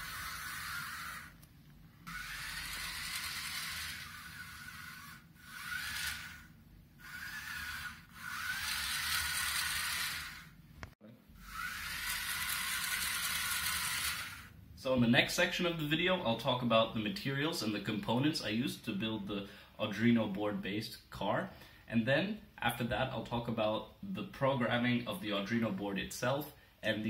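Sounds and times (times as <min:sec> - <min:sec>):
small motors whirring: 0:00.0 - 0:10.6, 0:11.4 - 0:14.6.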